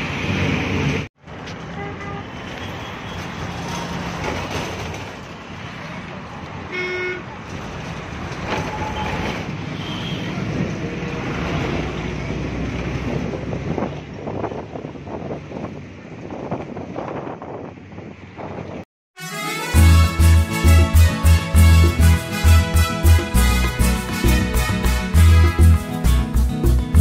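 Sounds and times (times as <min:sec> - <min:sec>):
road traffic noise: 0:00.0 - 0:27.0
vehicle horn tooting: 0:06.7 - 0:07.3, 0:08.7 - 0:10.4.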